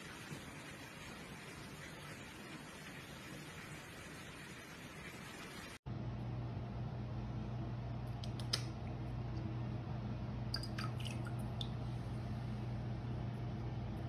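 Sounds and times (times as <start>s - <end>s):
steady low hum: 5.9s - 14.0s.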